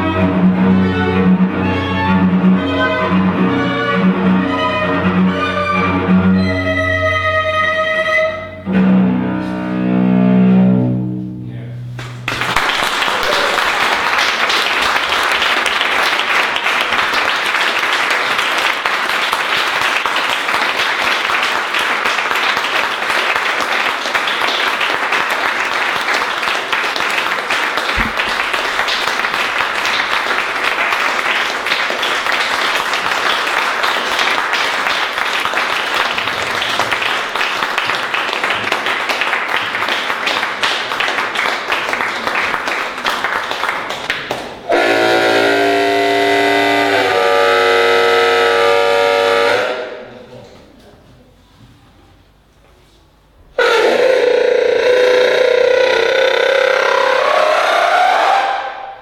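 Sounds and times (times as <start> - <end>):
audience applauding: 12.0 - 47.3, 53.6 - 58.6.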